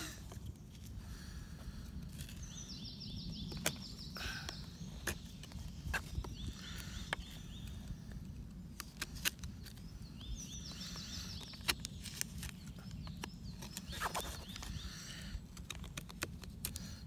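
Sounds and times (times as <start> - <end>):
knife carving wood: 2.0 - 2.6, 8.7 - 9.8, 10.8 - 17.0
bird chirping trill: 2.2 - 8.0, 9.4 - 15.2.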